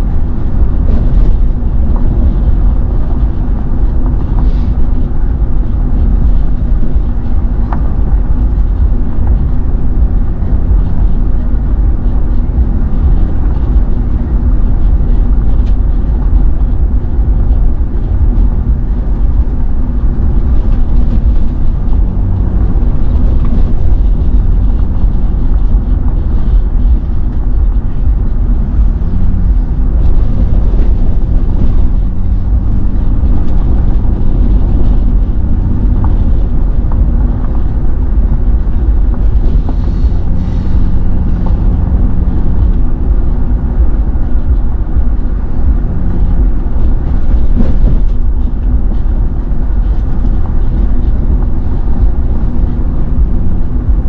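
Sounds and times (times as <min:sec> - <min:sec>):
car road and engine rumble: 0:00.0 - 0:54.0.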